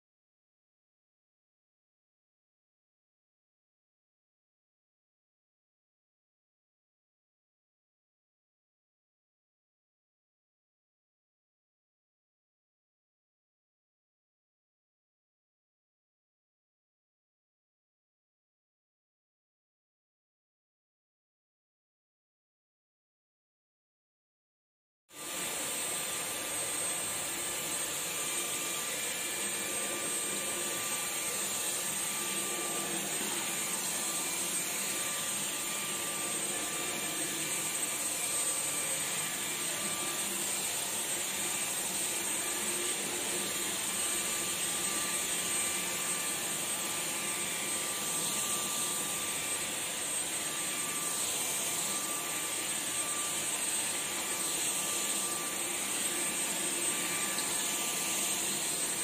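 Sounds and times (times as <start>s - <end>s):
vacuum cleaner running: 25.1s - 59.0s.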